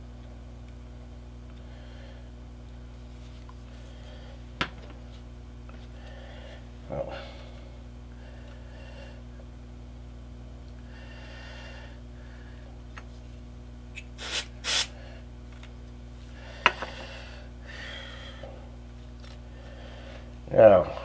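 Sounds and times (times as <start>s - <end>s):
steady low hum: 0.0s - 21.0s
aerosol spray hisses: 14.2s - 14.9s.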